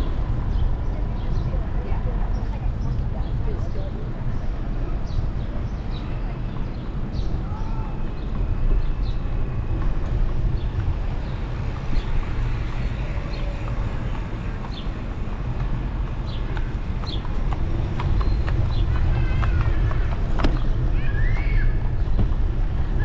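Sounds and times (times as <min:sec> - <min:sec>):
low road rumble: 0:00.0 - 0:23.0
horse hooves clip-clopping: 0:08.1 - 0:20.8.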